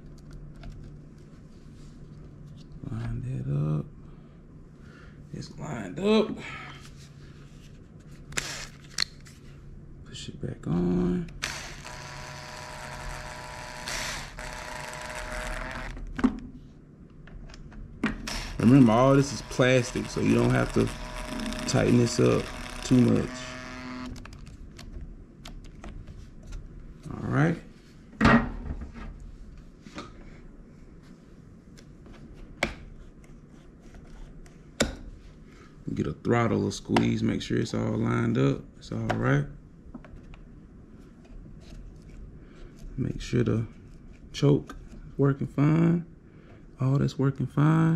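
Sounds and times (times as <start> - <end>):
cordless drill motor running: 11.4 - 16.0, 18.2 - 24.2.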